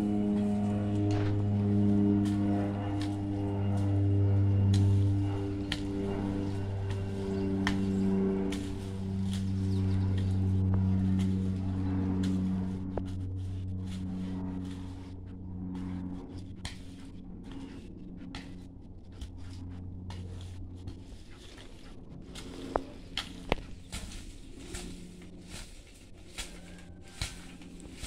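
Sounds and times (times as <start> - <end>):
low hum: 0.0 - 28.0
hoe chopping into soil: 0.3 - 9.5.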